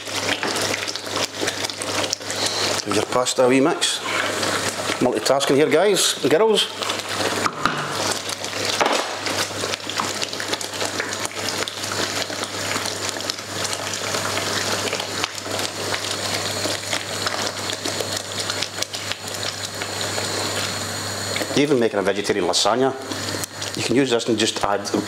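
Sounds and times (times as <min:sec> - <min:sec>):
sauce bubbling in a frying pan: 0:00.0 - 0:25.0
wooden spoon scraping a pan: 0:03.9 - 0:05.5.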